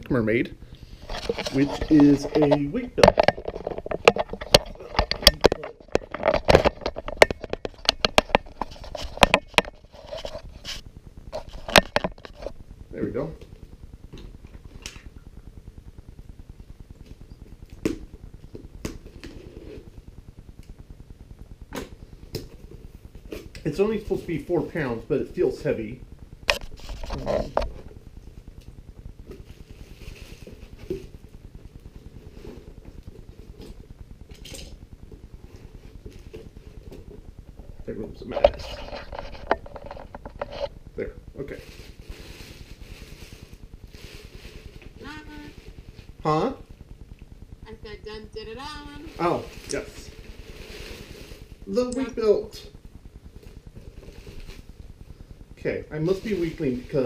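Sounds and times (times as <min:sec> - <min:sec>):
rubbing and rustling: 0:00.8 - 0:12.7, 0:26.5 - 0:28.4, 0:29.2 - 0:33.9, 0:35.1 - 0:40.8, 0:41.5 - 0:46.2, 0:48.5 - 0:51.9, 0:53.3 - 0:55.2
rustling cardboard box and bubble wrap: 0:29.2 - 0:34.5, 0:41.4 - 0:46.7, 0:48.5 - 0:52.7, 0:53.3 - 0:55.3, 0:55.9 - 0:57.0.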